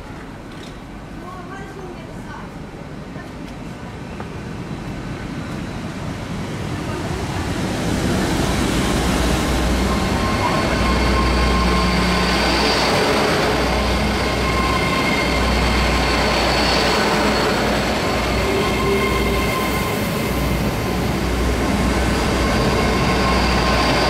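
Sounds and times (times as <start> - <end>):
train passing at speed: 0.0 - 24.0
high-pitched whining tones: 8.5 - 24.0.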